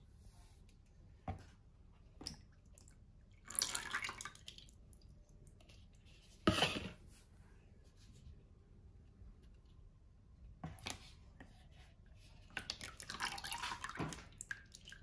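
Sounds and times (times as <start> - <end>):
liquid splashing in a plastic tub: 2.1 - 5.7, 12.4 - 15.0.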